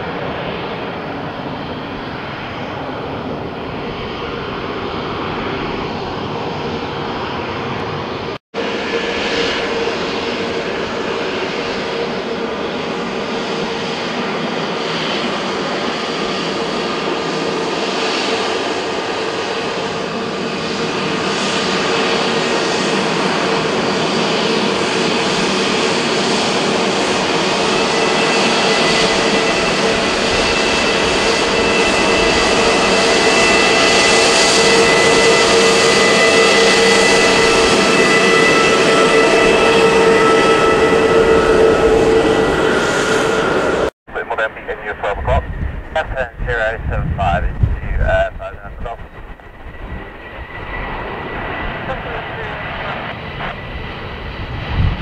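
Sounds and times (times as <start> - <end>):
high jet engine whine: 0.0 - 55.0
jet engines taxiing hum: 0.0 - 55.0
jet climbing away: 24.8 - 55.0.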